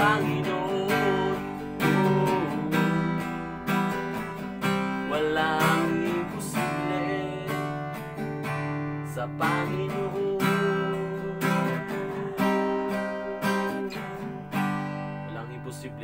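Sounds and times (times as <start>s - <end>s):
man singing: 0.0s - 3.5s, 5.0s - 8.0s, 9.0s - 14.3s, 15.3s - 16.0s
acoustic guitar strumming: 0.0s - 16.0s.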